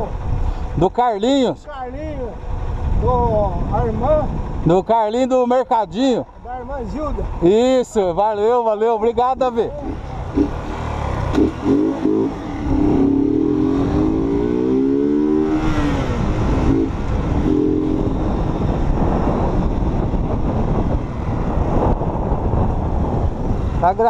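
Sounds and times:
motorcycle engine revving: 9.2 - 24.0.

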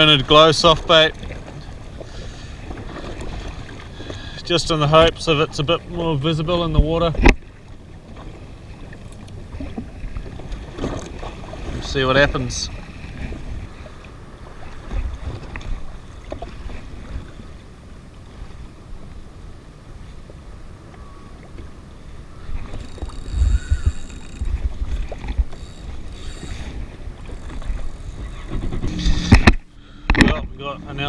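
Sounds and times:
water lapping at hull: 0.0 - 31.0
wind rumbling on microphone: 6.6 - 31.0.

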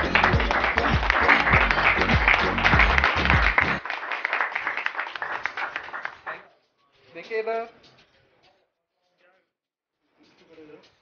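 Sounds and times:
music with pounding drum beat: 0.0 - 3.8
group applause: 0.0 - 6.5.

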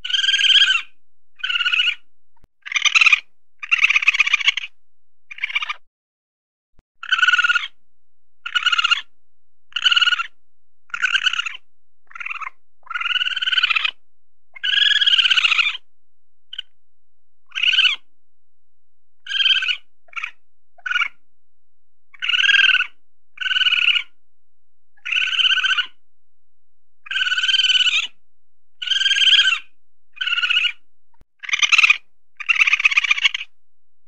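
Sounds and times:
weasel trilling calls: 0.0 - 5.8, 7.0 - 7.8, 8.4 - 9.1, 9.7 - 14.0, 14.6 - 15.8, 16.5 - 16.7, 17.5 - 18.1, 19.2 - 21.2, 22.1 - 24.2, 25.0 - 26.0, 27.0 - 28.2, 28.8 - 30.8, 31.4 - 33.5.

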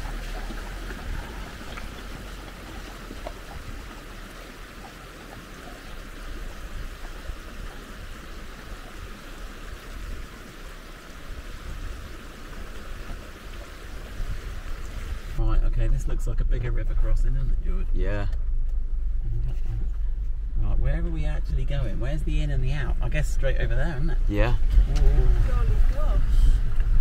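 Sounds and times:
flowing water: 0.0 - 15.4, 23.8 - 27.0
low rumble: 14.1 - 27.0.

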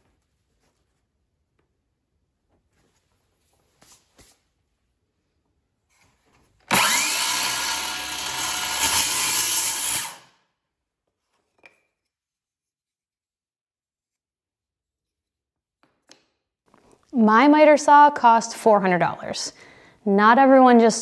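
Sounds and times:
circular saw cutting wood: 6.7 - 10.4.

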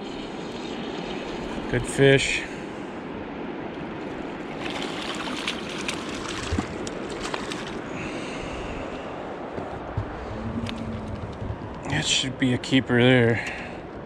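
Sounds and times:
river water rushing: 2.3 - 12.2
fish splashing at surface: 4.5 - 7.9
sharp splashes and clicks: 4.5 - 7.9.

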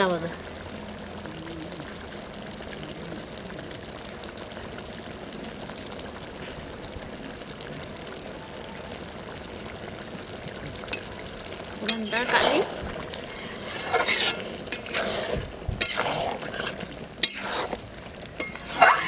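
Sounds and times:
curry simmering in a pot: 0.0 - 19.0.

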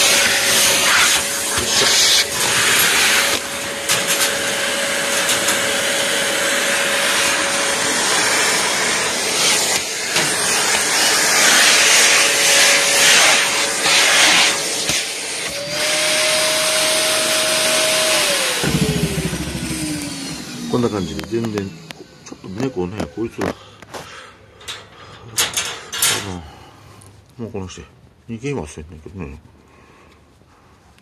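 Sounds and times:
vacuum cleaner running: 0.0 - 23.6.

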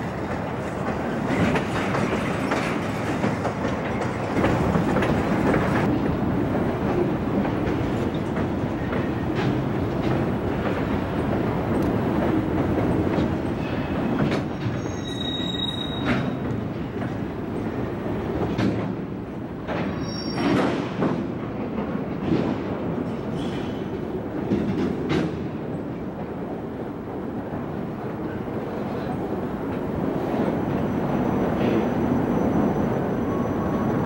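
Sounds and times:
train cars clanking: 0.0 - 34.0
train cars rumbling: 0.0 - 34.0
high-pitched wheel squeals: 14.8 - 16.3.

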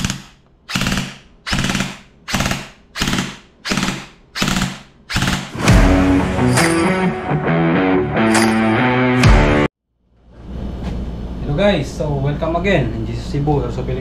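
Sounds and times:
airsoft gun firing bursts: 0.0 - 5.6
music with low boom: 5.6 - 9.7.

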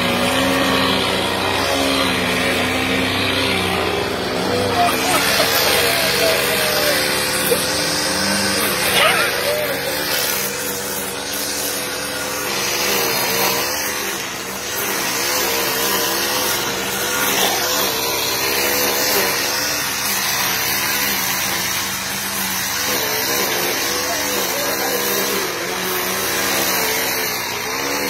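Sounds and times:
string trimmer engine running: 0.0 - 28.0.

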